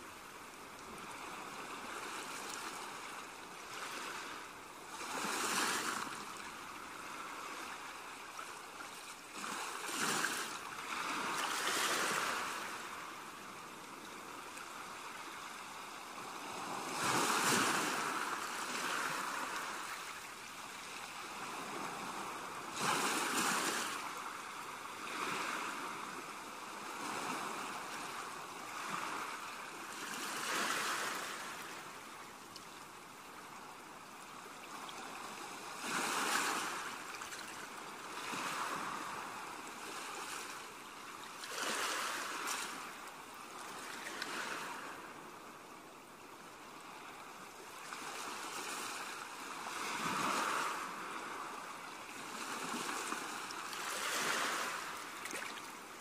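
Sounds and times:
sea waves washing onto sand: 0:14.6 - 0:31.9, 0:48.0 - 0:56.0.

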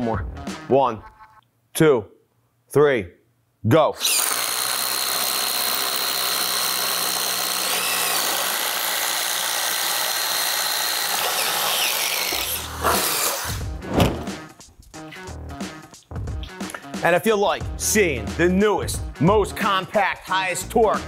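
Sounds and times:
impact drivers boring through wood: 0:04.0 - 0:13.6.

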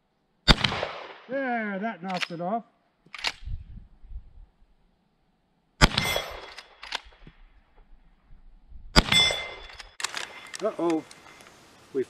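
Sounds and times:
rifle shot with ringing tail: 0:00.5 - 0:01.2, 0:05.8 - 0:06.6, 0:08.9 - 0:09.8
rifle lever metallic clicks: 0:02.1 - 0:02.4, 0:03.1 - 0:03.5, 0:06.3 - 0:07.2, 0:09.1 - 0:11.2
sharp click: 0:02.1 - 0:02.4, 0:03.1 - 0:03.6, 0:06.3 - 0:07.4.

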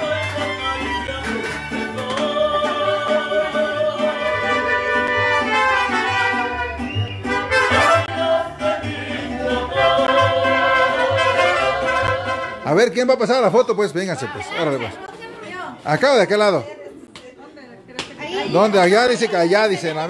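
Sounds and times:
mariachi band playing: 0:00.0 - 0:15.1
trumpets: 0:04.2 - 0:08.4, 0:09.7 - 0:12.8.

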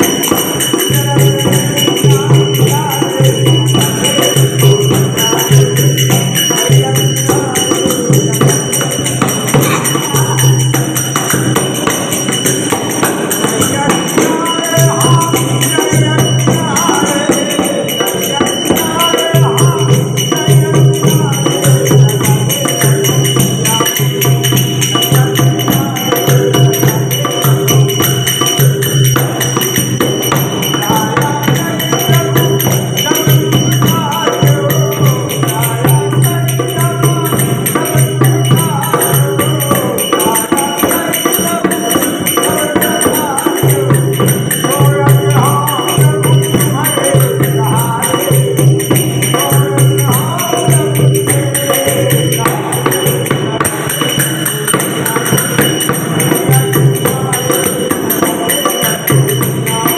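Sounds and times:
hand drum: 0:00.0 - 0:59.9
jingling percussion: 0:00.0 - 0:59.9
man singing: 0:00.0 - 0:59.9.

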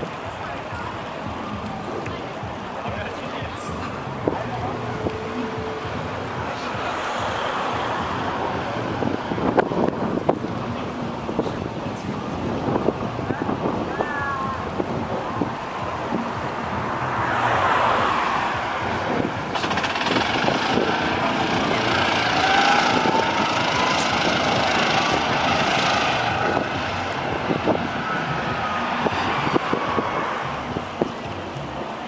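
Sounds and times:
steady traffic rushing: 0:00.0 - 0:32.0
vehicle driving past: 0:16.5 - 0:31.8.

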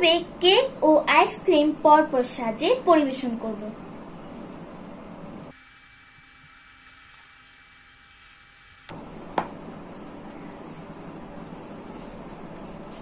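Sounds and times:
faint room noise: 0:00.0 - 0:05.6, 0:08.9 - 0:13.0.

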